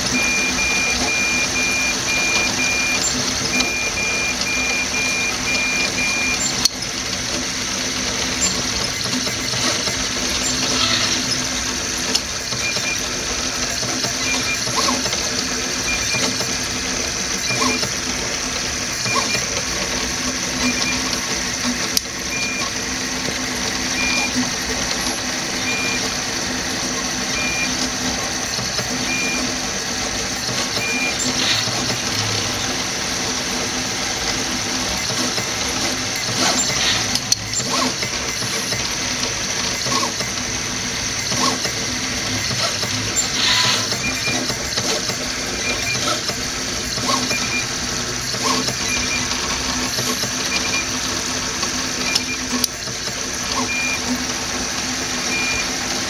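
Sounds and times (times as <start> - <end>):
cooling fan: 0.0 - 56.0
stepper motors whirring: 0.0 - 56.0.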